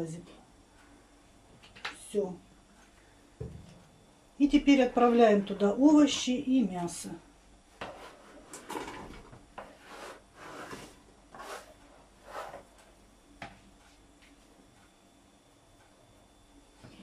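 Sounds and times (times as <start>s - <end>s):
food scraped off plastic cutting board: 9.8s - 11.7s.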